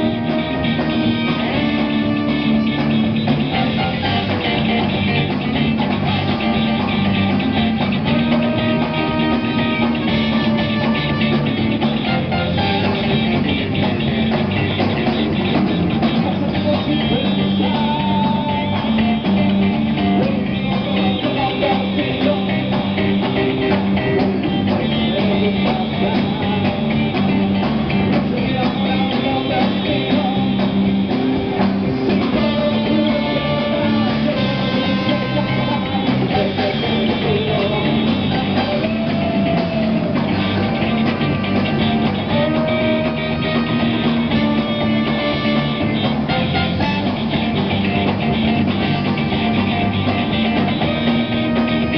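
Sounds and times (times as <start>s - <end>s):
trumpet: 0.0s - 14.0s, 32.2s - 51.9s
drum kit: 0.0s - 51.9s
electric guitars: 0.0s - 51.9s
saxophone: 0.0s - 51.9s.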